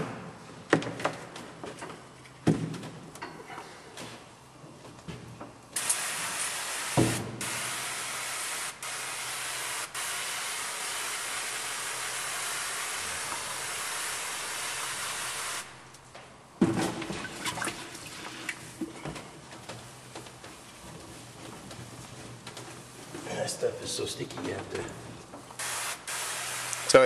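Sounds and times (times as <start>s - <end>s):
water spray hissing on stone: 5.8s - 15.7s, 25.6s - 27.0s.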